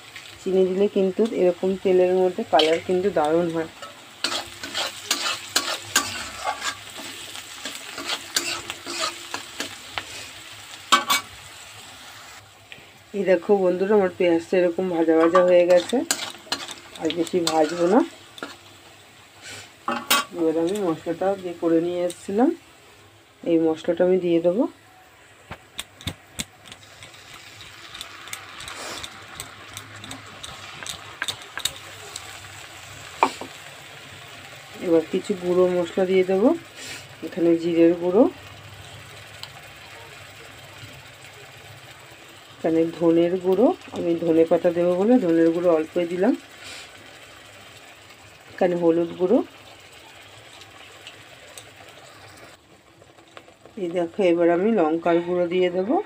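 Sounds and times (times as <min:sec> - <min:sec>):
onions sizzling in oil: 0:00.0 - 0:56.0
metal spatula scraping pan: 0:02.6 - 0:10.2, 0:15.1 - 0:18.7.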